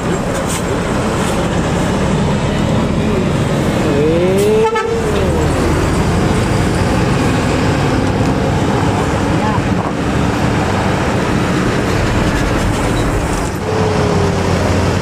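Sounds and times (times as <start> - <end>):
bus diesel engine passing: 0.0 - 15.0
two-tone bus horn: 4.3 - 5.4.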